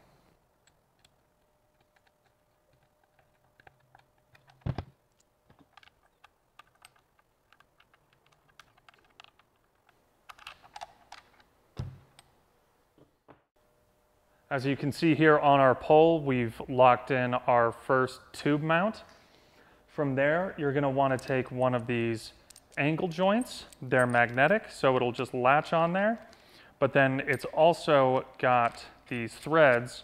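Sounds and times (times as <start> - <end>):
thumbscrews clicking and rattling: 0.7 - 11.5.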